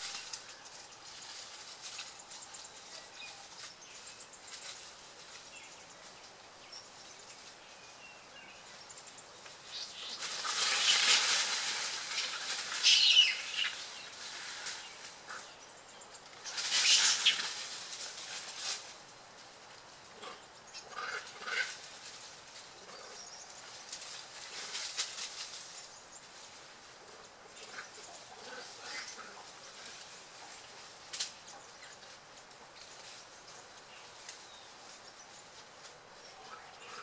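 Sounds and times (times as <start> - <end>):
bird chirp: 5.4 - 11.1, 12.1 - 17.6.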